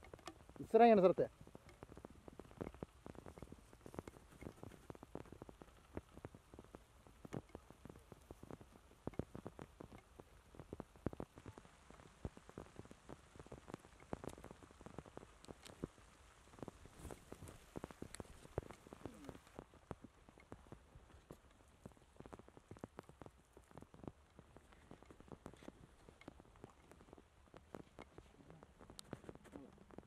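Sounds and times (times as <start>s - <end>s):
rustling through tall grass: 11.0s - 30.0s.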